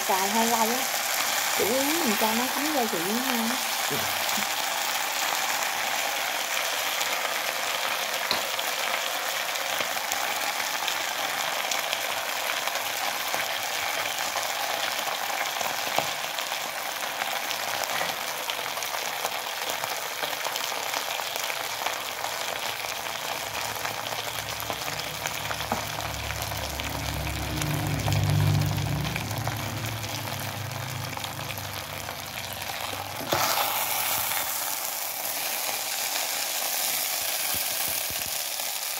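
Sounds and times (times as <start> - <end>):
food sizzling in a pan: 0.0 - 38.9
low rumble: 25.1 - 33.1.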